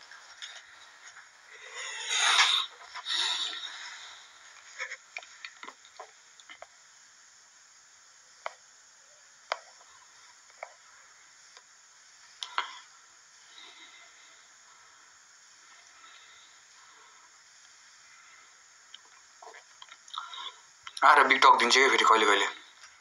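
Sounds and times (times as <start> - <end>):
faint clicks: 12.4 - 12.8.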